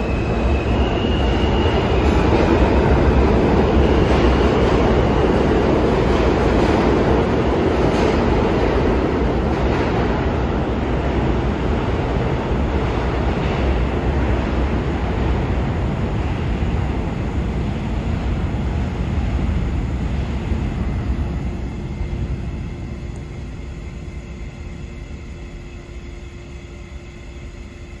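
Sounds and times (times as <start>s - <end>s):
subway train rumble: 0.0s - 28.0s.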